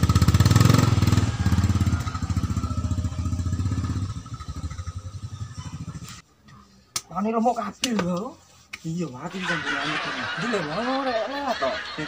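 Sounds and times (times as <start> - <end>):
small motorcycle engine pulling away: 0.0 - 6.2.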